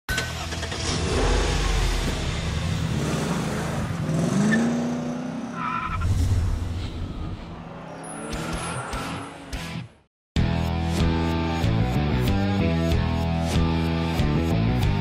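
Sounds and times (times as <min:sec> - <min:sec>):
car engine revving: 0:00.6 - 0:05.6
tire squeal: 0:04.4 - 0:09.8.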